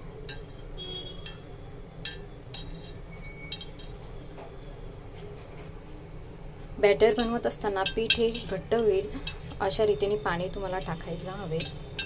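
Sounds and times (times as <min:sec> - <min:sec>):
metallic clinks of steel bowl: 0:00.2 - 0:04.0, 0:07.1 - 0:08.6, 0:11.5 - 0:12.0.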